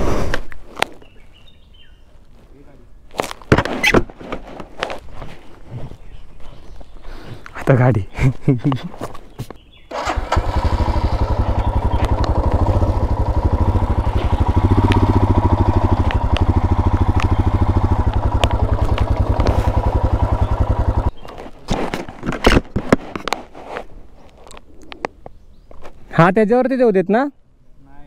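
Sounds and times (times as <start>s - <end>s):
motorcycle engine idling: 9.9s - 21.4s.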